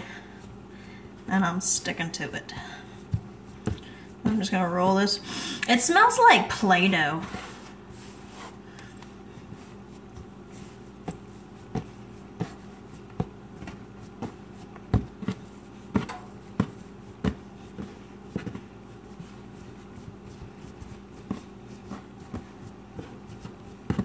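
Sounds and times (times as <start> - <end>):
steady low hum: 0.0 - 24.0
dough thumping on countertop: 11.0 - 24.0.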